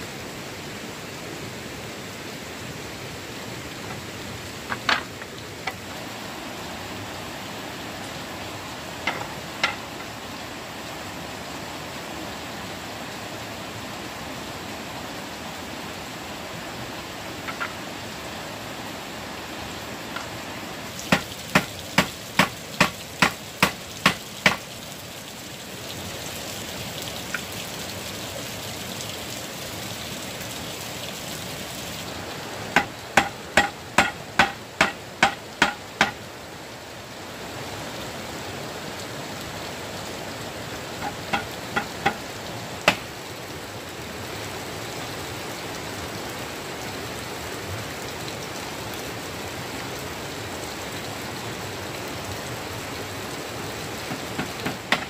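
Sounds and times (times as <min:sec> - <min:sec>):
steady hiss: 0:00.0 - 0:47.4, 0:50.5 - 0:55.0.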